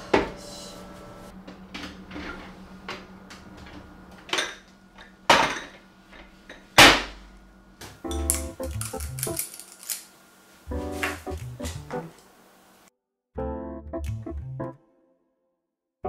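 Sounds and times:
music: 8.0s - 9.4s, 10.7s - 12.2s, 13.4s - 15.5s.

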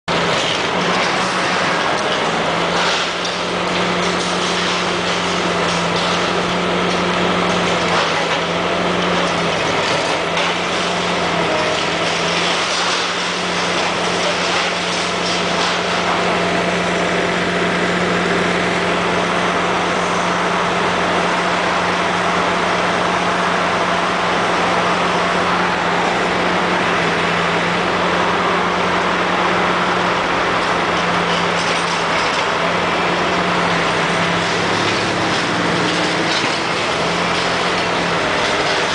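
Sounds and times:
excavator diesel engine running: 0.0s - 38.9s
hydraulic jaw crunching concrete: 0.1s - 19.2s, 30.1s - 38.9s.

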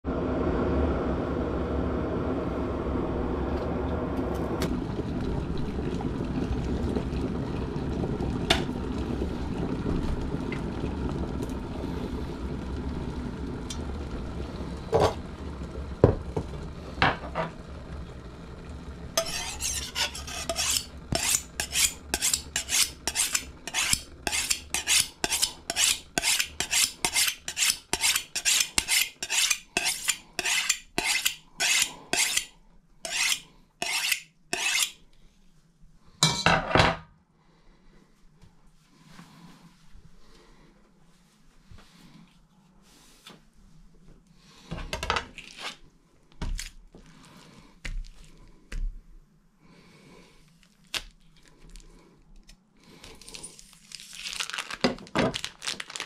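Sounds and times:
noisy rumble: 0.1s - 22.1s
knife scraping on sharpening steel: 19.2s - 35.0s.

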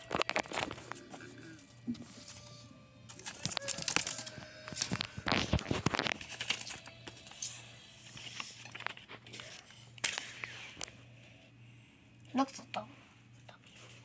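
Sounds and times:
paper rustling and crinkling: 0.0s - 11.0s.

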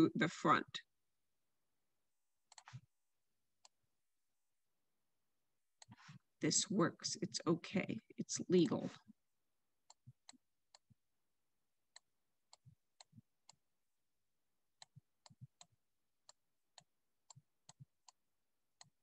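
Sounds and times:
stylus tapping tablet screen: 2.4s - 3.0s, 5.7s - 6.2s, 9.8s - 11.0s, 11.9s - 13.7s, 14.8s - 18.2s.

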